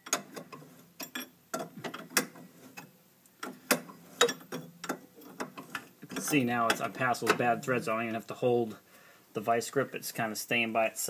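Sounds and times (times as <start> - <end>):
light metal clanks: 0.0 - 7.6.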